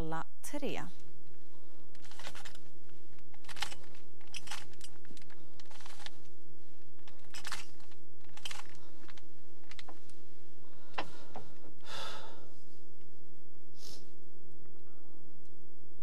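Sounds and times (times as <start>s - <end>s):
steady low hum: 0.0s - 16.0s
puzzle cube clicking and rattling: 1.9s - 6.3s, 6.9s - 10.0s.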